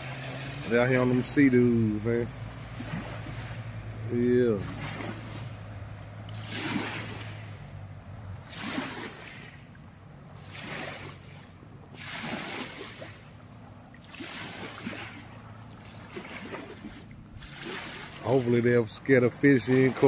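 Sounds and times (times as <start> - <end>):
distant motorboat hum: 0.0 - 20.0
small waves on pebble shore: 2.5 - 5.6, 6.3 - 7.8, 8.4 - 18.8.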